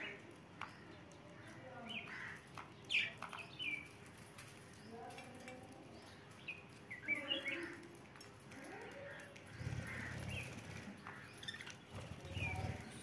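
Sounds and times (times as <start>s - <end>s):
budgerigars chirping: 9.6s - 12.8s.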